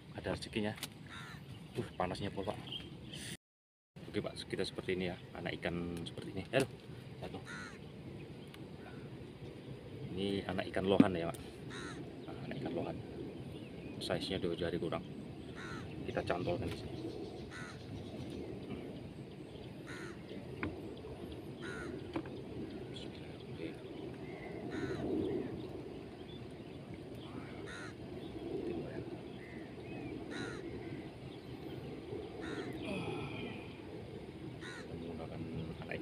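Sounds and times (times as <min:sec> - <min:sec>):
crows cawing: 0:01.0 - 0:01.6, 0:07.2 - 0:07.9, 0:08.8 - 0:09.2, 0:11.6 - 0:12.6, 0:15.5 - 0:16.3, 0:17.3 - 0:18.1, 0:19.8 - 0:20.7, 0:21.6 - 0:22.2, 0:24.2 - 0:25.6, 0:27.2 - 0:28.1, 0:29.3 - 0:31.4, 0:32.3 - 0:33.9, 0:34.6 - 0:35.3.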